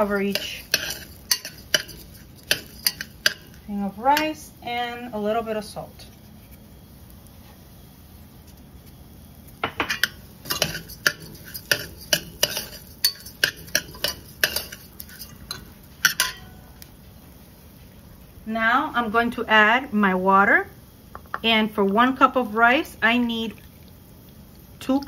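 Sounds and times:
metal spoon stirring rice in pot: 0.0 - 4.4, 9.9 - 16.5.

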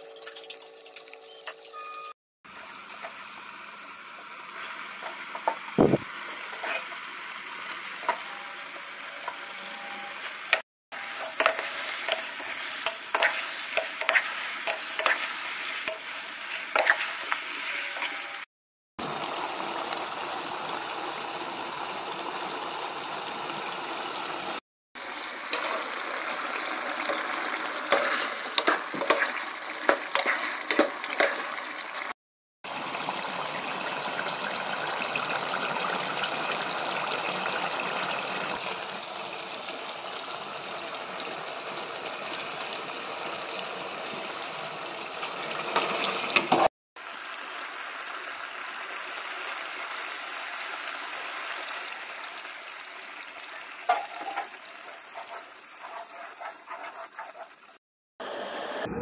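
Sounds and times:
curry sizzling and bubbling in pot: 2.5 - 57.8.

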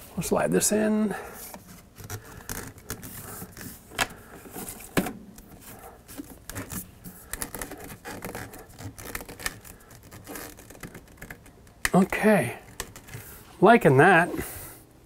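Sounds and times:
plastic fittings clicking and scraping: 1.5 - 4.2, 6.1 - 13.3.

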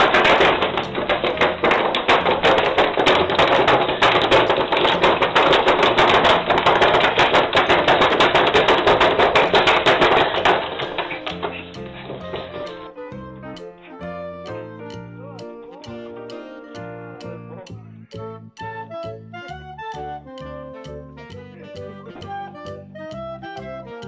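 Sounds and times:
rapid tapping and clattering: 0.0 - 12.8
music with low bass line: 11.8 - 23.4.

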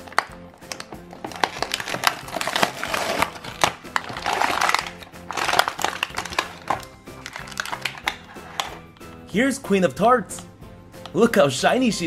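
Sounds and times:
plastic packaging crinkling: 0.0 - 8.9
background music: 0.0 - 12.0.

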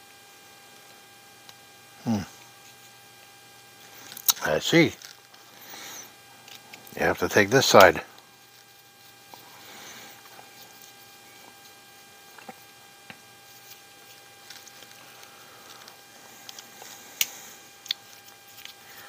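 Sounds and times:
faint electrical hum: 0.0 - 19.0
small parts clicking and tapping: 12.4 - 18.8.

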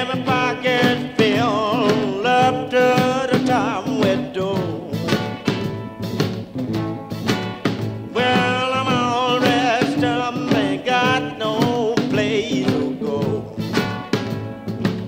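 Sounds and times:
person singing over band: 0.0 - 5.4, 8.2 - 14.2.

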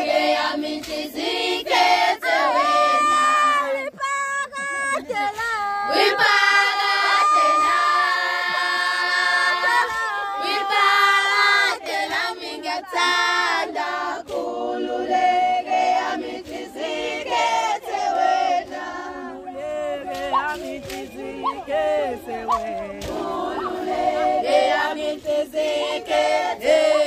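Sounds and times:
women singing a cappella: 0.0 - 27.0.

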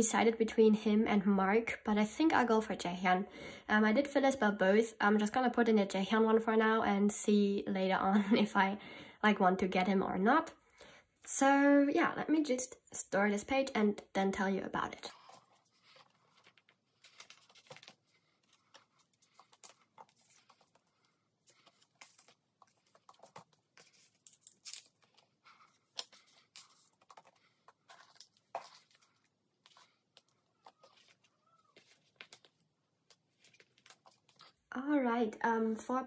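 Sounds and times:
plastic sleeves rustling and clicking: 14.9 - 34.7.

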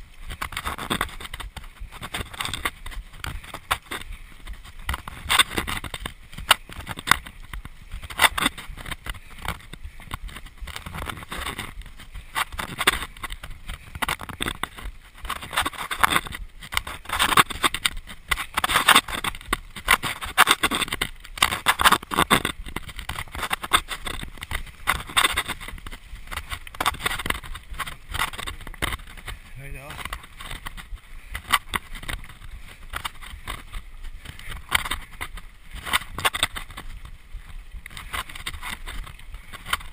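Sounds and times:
bike knocking and rattling over bumps: 0.0 - 39.9
bike tyres rolling on dirt and stones: 0.0 - 39.9.

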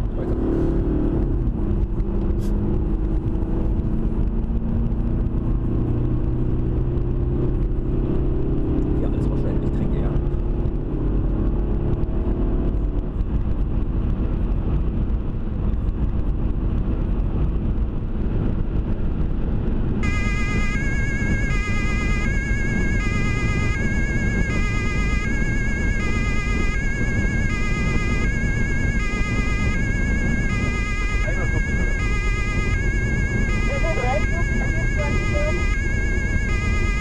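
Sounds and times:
car road and engine noise: 0.0 - 37.0
two-tone police siren: 20.0 - 37.0.

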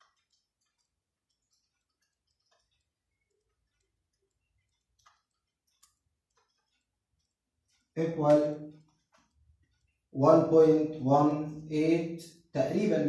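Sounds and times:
calculator keys clicking: 0.0 - 9.8.

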